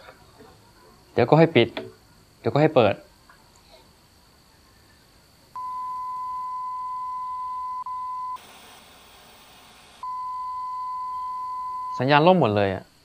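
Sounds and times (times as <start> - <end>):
television static hiss: 0.0 - 5.6, 7.8 - 10.6, 11.9 - 13.0
steady high beep tone: 5.6 - 8.4, 10.0 - 12.1.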